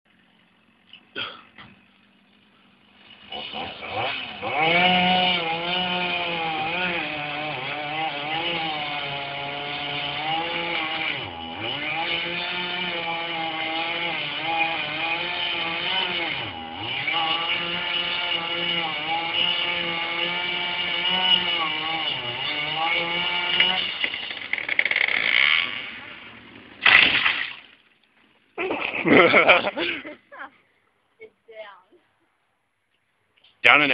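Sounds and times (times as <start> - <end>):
engine revving under load: 1.6 - 27.4.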